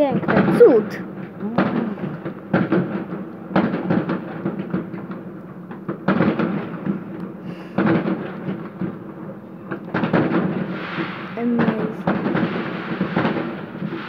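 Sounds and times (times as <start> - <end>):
fireworks bangs: 0.0 - 14.0
smaller firework pops: 0.0 - 14.0.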